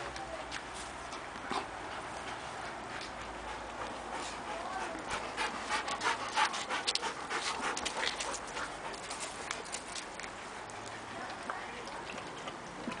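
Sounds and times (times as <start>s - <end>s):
dog panting: 1.1s - 11.4s.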